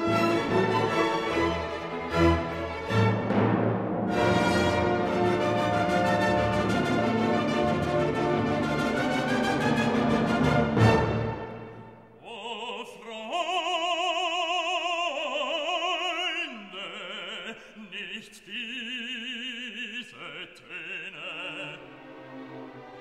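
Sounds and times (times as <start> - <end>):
operatic solo singing: 12.1 - 22.2.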